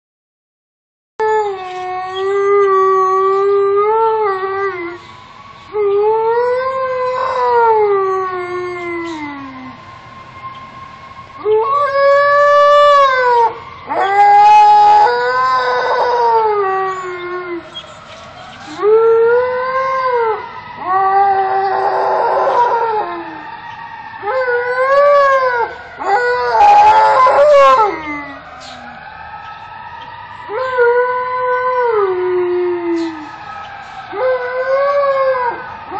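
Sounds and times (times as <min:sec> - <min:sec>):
dog howling: 0:01.2 - 0:05.0, 0:05.8 - 0:09.8, 0:11.4 - 0:17.9, 0:18.6 - 0:23.5, 0:24.2 - 0:29.0, 0:30.5 - 0:33.4, 0:34.1 - 0:35.9
faint fire engine sirens: 0:01.2 - 0:35.9.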